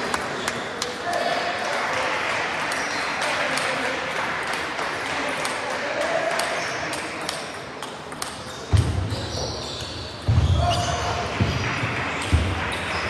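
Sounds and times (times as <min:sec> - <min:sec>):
murmur of voices: 0:00.0 - 0:13.0
table tennis balls clicking: 0:07.2 - 0:08.9.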